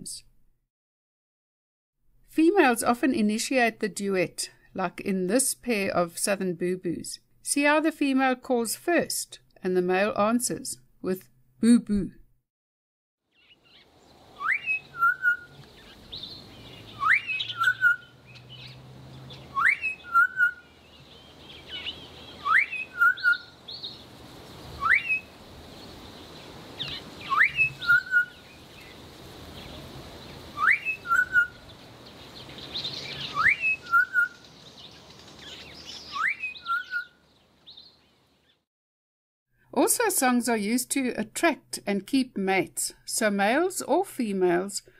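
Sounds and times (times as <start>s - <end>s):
bird rising whistle: 14.4s - 15.6s, 17.0s - 18.1s, 19.5s - 20.6s, 22.4s - 23.5s, 24.8s - 25.3s, 27.2s - 28.4s, 30.6s - 31.6s, 33.2s - 34.4s, 36.1s - 37.2s.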